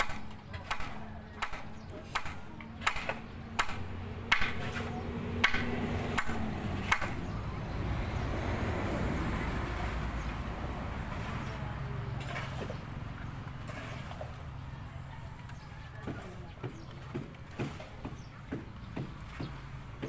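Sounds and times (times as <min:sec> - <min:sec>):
hammer knocking on wood: 0:16.0 - 0:20.0.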